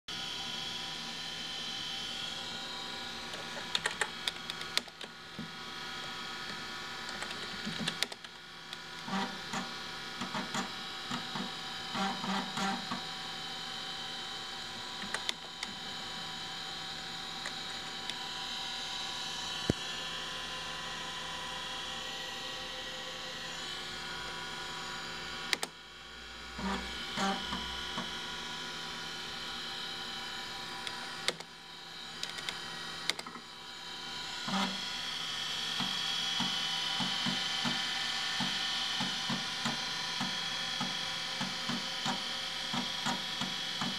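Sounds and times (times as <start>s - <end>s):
computer fans humming: 0.2s - 43.9s
hard drive spinning: 0.7s - 43.9s
hard drive clicking and buzzing: 3.2s - 5.6s, 6.4s - 13.3s, 14.5s - 18.4s, 25.2s - 25.8s, 26.5s - 28.4s, 29.3s - 33.5s, 34.4s - 35.0s, 35.7s - 43.9s.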